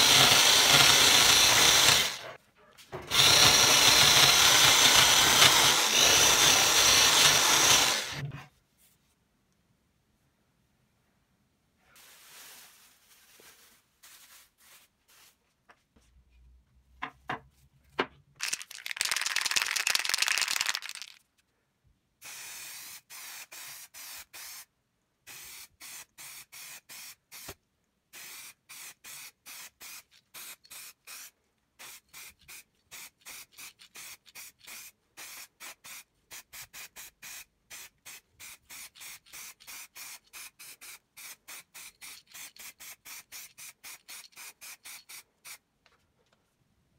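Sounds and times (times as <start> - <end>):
aerosol spray can hissing: 22.2 - 24.7, 25.3 - 45.6.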